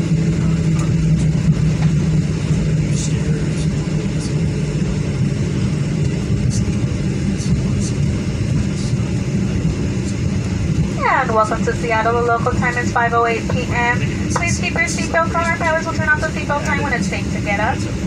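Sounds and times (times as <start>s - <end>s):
airplane cabin rumble: 0.0s - 18.0s.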